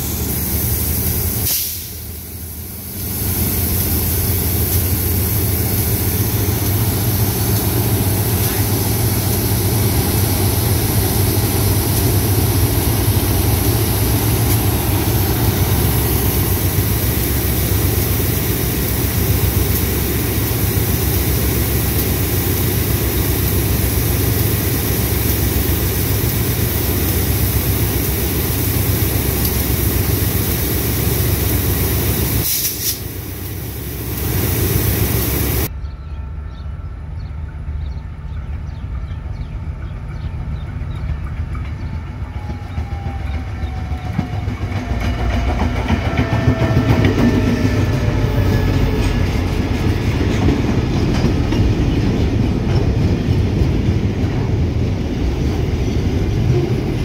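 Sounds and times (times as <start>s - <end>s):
distant approaching train: 0.0s - 57.0s
locomotive engine drone: 0.0s - 57.0s.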